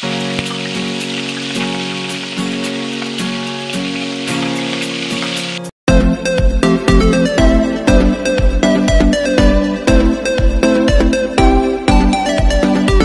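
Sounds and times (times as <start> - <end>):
oil sizzling in a wok: 0.0 - 5.7.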